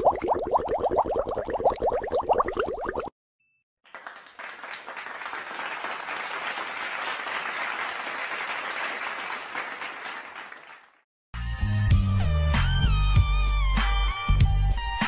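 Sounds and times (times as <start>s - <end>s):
crowd applauding: 3.9s - 11.0s.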